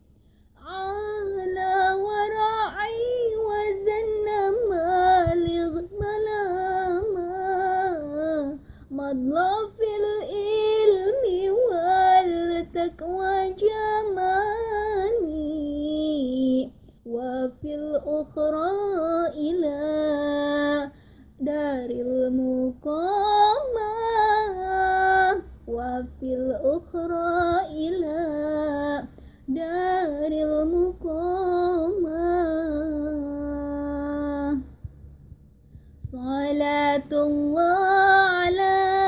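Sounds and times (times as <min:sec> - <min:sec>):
singer breathing: 0:00.1 - 0:00.6, 0:08.6 - 0:08.9, 0:20.9 - 0:21.4, 0:29.1 - 0:29.5, 0:35.6 - 0:36.1
woman singing devotional song: 0:00.3 - 0:35.0, 0:35.7 - 0:39.0.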